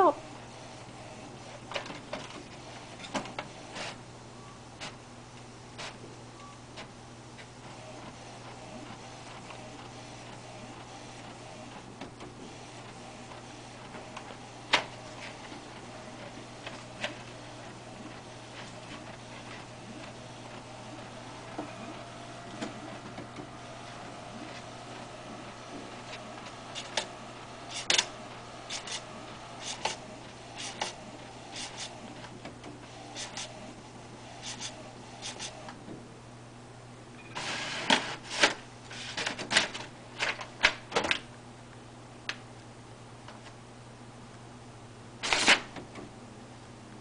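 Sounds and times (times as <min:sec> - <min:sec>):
inkjet printer printing: 0:00.0 - 0:04.1, 0:05.7 - 0:06.0, 0:06.7 - 0:35.8, 0:37.4 - 0:40.7
printer rattle: 0:07.7 - 0:35.7.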